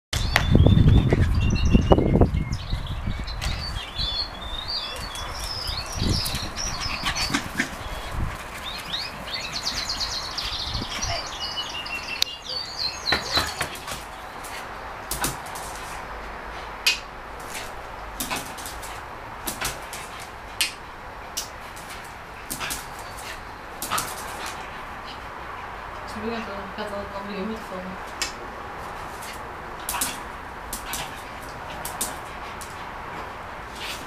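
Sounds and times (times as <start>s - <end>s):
small birds singing: 0.2s - 15.4s, 19.5s - 25.3s.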